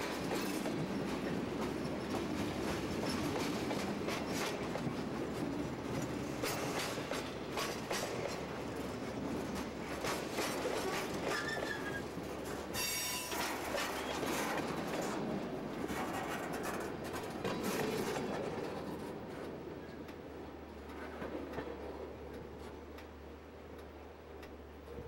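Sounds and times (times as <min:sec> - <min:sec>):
train wheels clacking over rail joints: 0:00.0 - 0:20.2
train wheel squeals: 0:11.0 - 0:12.1, 0:12.7 - 0:14.3.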